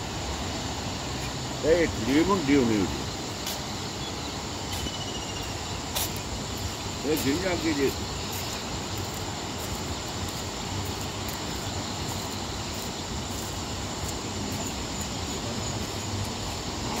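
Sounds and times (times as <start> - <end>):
river in flood roaring: 0.0 - 17.0.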